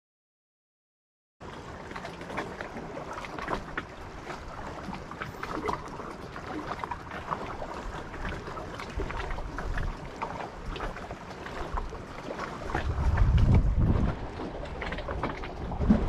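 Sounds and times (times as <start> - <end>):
small clicks and splashes: 1.4 - 16.0
water lapping at shore: 1.4 - 16.0
wind on microphone: 7.6 - 16.0.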